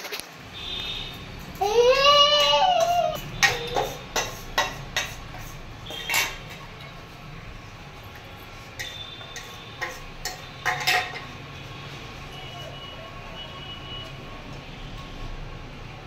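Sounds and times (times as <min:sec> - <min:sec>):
forks clinking on plates: 0:02.4 - 0:07.0, 0:08.1 - 0:11.4.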